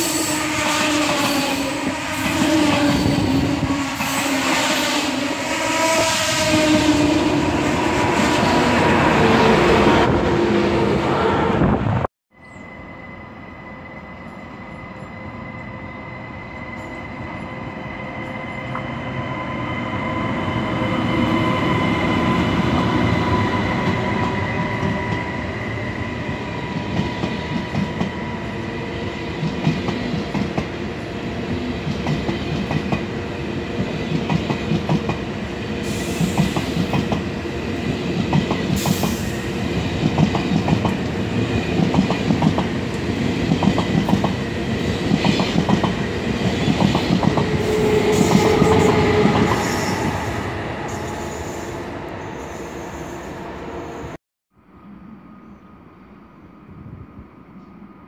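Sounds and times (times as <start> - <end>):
high-speed train passing: 0.0 - 58.0.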